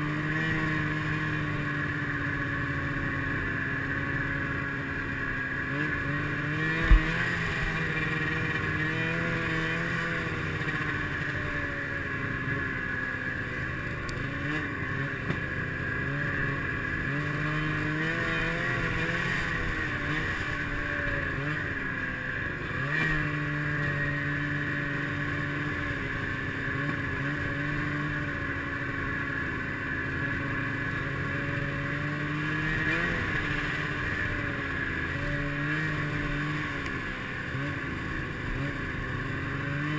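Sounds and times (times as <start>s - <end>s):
snowmobile engine running: 0.0s - 39.9s.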